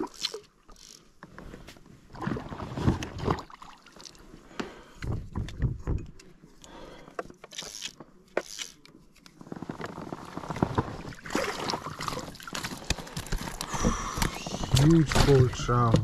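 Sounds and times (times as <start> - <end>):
water splashing: 11.0 - 12.9.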